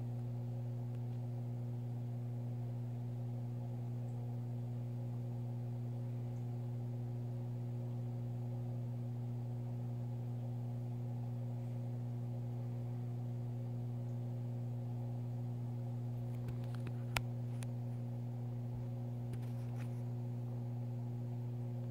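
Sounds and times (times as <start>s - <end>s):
low electrical hum: 0.0s - 21.9s
clicks: 16.3s - 17.8s.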